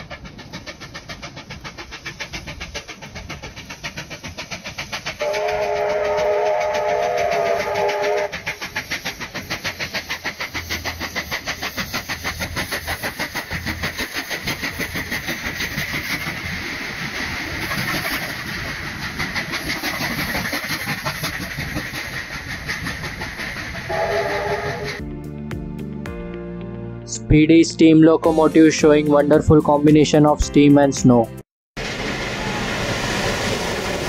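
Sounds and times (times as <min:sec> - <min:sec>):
locomotive exhaust chuffs: 0:00.0 - 0:25.0
steam locomotive whistle chord: 0:05.2 - 0:08.4, 0:23.9 - 0:25.0.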